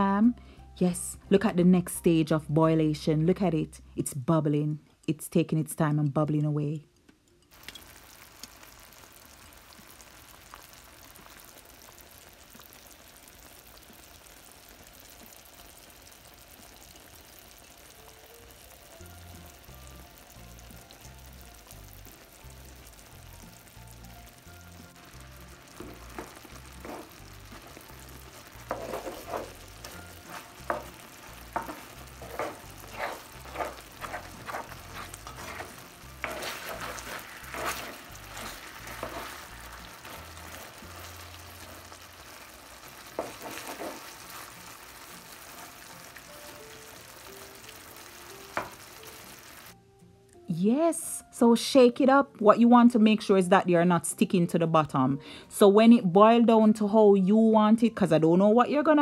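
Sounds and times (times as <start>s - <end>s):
sauce bubbling in frying pan: 7.4s - 49.8s.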